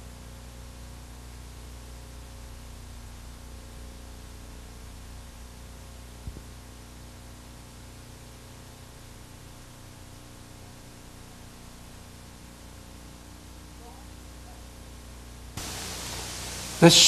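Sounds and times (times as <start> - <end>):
low electrical hum: 0.0 - 17.0
even hiss: 15.5 - 17.0.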